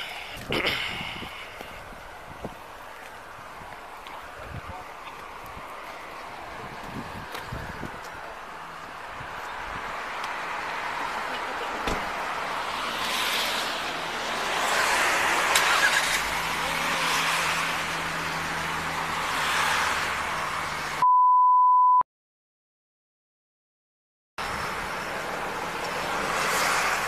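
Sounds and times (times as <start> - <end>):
cars passing: 0.0 - 21.0, 24.4 - 27.0
steady beep tone: 21.0 - 22.0.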